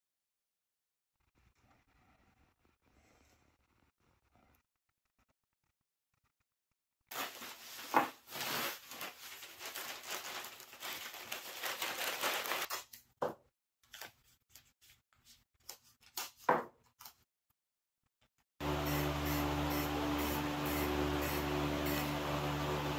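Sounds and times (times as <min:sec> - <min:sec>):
paper rustling and crinkling: 0:07.1 - 0:13.0, 0:13.8 - 0:17.2
tape tearing: 0:07.1 - 0:13.0
steady hum: 0:18.6 - 0:22.9.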